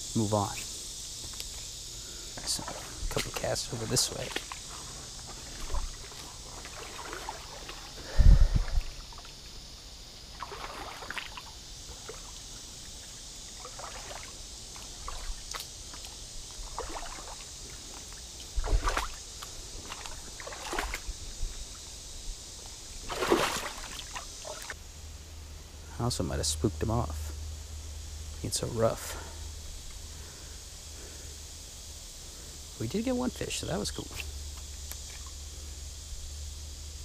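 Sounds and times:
creek water trickling: 0:01.6 - 0:24.8
water splashes and rustles: 0:02.4 - 0:09.6, 0:10.2 - 0:24.8.

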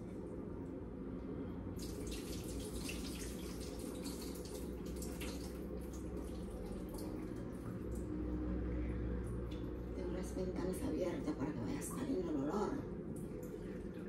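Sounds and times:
steady low hum: 0:00.0 - 0:14.0
tap water splashing into sink: 0:01.8 - 0:08.1.

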